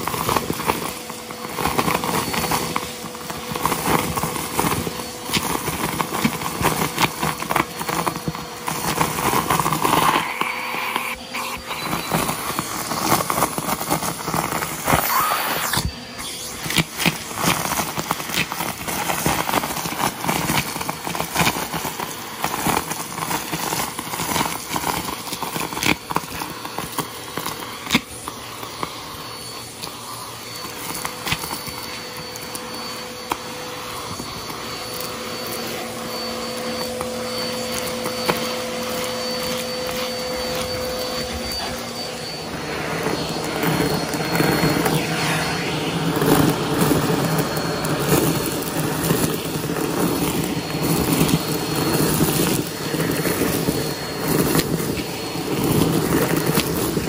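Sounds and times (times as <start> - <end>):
vacuum cleaner running: 0.0 - 57.0.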